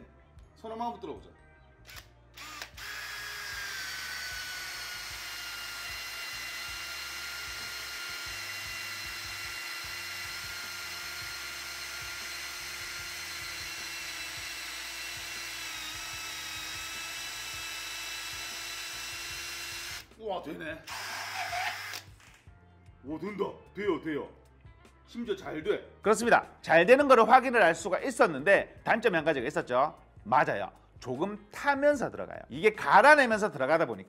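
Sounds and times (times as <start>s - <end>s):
cordless drill motor whining: 1.9s - 20.1s, 20.9s - 22.3s
drill bit grinding wood: 2.4s - 20.1s, 20.9s - 22.1s.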